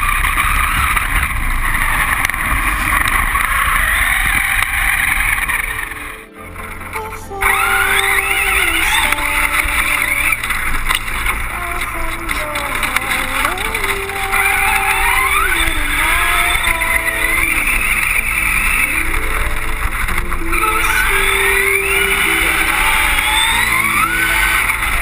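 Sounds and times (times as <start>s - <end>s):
rc car motor revving: 0.0s - 25.0s.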